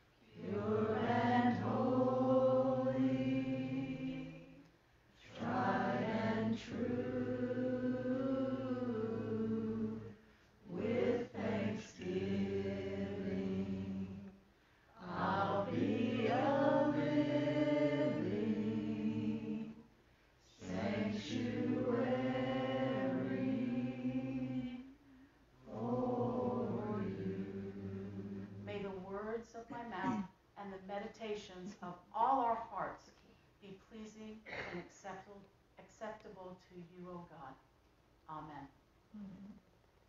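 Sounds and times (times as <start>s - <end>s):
congregation singing a cappella: 0.0s - 4.6s, 5.2s - 19.9s, 20.5s - 28.9s.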